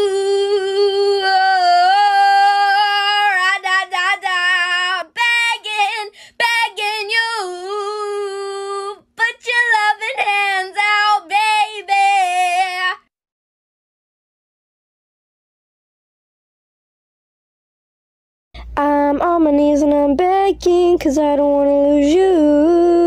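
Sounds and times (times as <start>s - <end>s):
woman singing a cappella: 0.0s - 13.1s, 18.6s - 23.0s.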